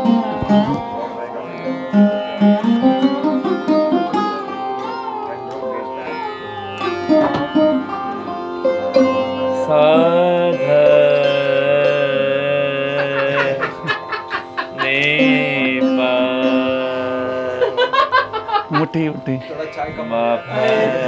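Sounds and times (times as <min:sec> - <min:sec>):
small wind instrument: 0:00.0 - 0:12.9
low drone: 0:00.0 - 0:21.0
plucked lute melody: 0:00.0 - 0:21.0.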